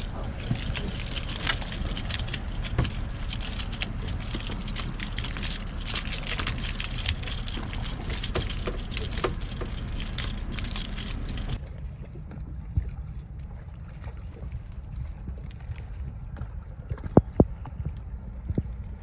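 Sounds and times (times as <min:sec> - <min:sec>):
sharp crackling clicks: 0:00.0 - 0:11.6
steady low rumble: 0:00.0 - 0:19.0
water lapping at boat: 0:00.0 - 0:19.0.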